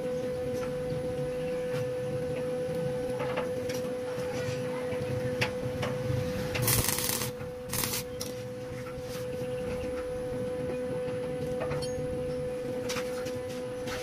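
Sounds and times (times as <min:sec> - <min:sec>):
steady hum: 0:00.0 - 0:14.0
welding arc crackling: 0:06.4 - 0:08.4.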